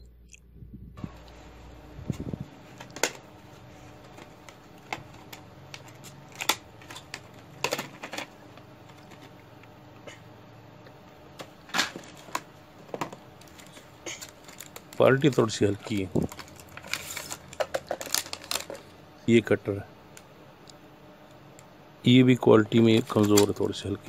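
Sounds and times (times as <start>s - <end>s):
plastic packs clicking and crinkling: 2.7s - 9.4s, 11.4s - 19.0s, 22.7s - 24.0s.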